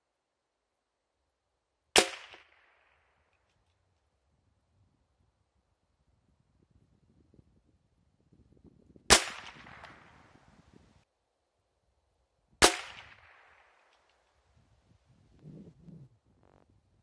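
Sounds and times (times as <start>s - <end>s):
rifle shots with echo: 2.0s - 2.9s, 9.1s - 10.4s, 12.6s - 14.0s.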